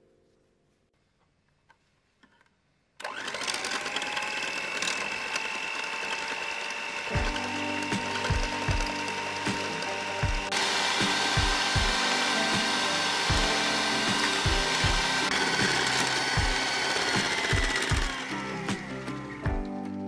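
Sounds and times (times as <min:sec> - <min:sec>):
steady mechanical noise: 0:03.0 - 0:19.5
music with steady beat: 0:07.2 - 0:20.0.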